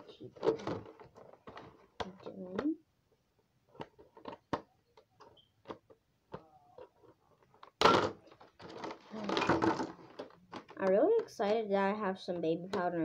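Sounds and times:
packaging rustle: 8.3 - 10.8.

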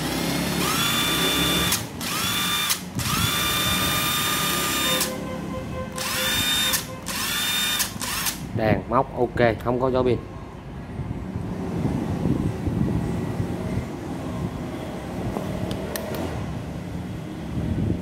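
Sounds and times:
cordless drill motor whining: 0.6 - 5.2, 6.0 - 8.4.

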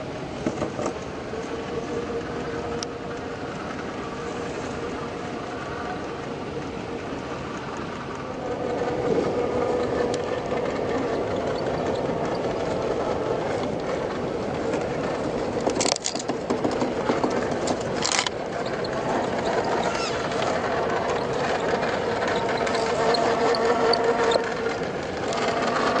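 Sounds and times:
electric motor whining: 17.1 - 26.0.

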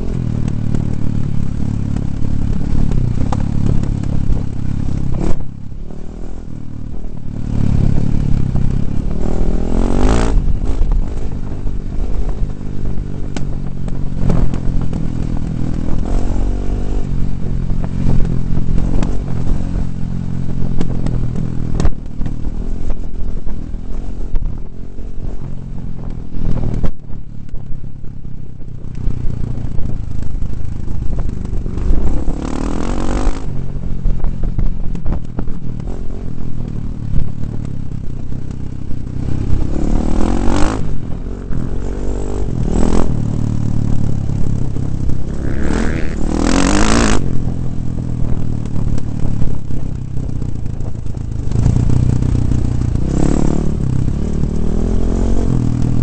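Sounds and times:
dirt bike engine revving: 39.2 - 47.5.

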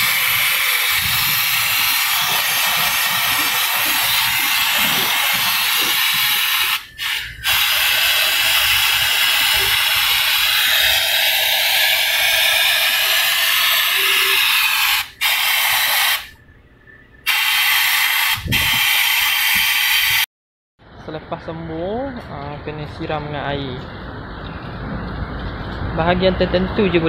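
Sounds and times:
spray nozzle hissing: 0.0 - 16.4, 17.3 - 20.2.

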